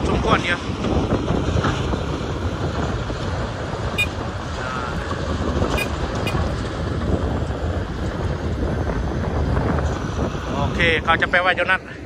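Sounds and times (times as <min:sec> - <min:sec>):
diesel engine rumbling: 0:00.0 - 0:12.0
wind buffeting microphone: 0:00.0 - 0:12.0.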